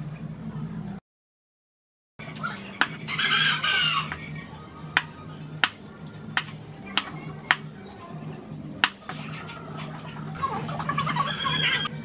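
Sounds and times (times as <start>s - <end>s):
knife chopping on wooden board: 8.8s - 9.2s.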